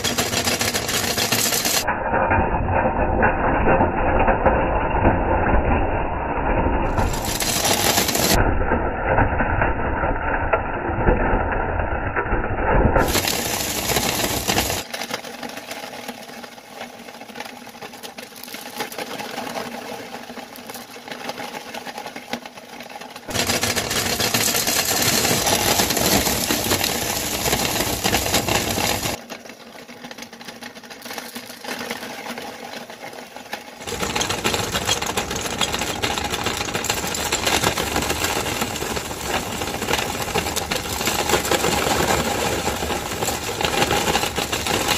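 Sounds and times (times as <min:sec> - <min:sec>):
meat grinder grinding candies: 0:00.0 - 0:01.9, 0:06.8 - 0:08.4, 0:13.0 - 0:44.9.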